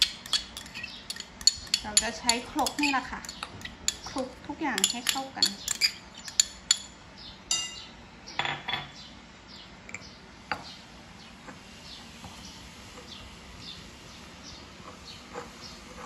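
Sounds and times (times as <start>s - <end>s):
bird chirping: 0.0s - 1.8s, 5.4s - 6.5s
stone pestle knocking mortar: 0.0s - 4.1s.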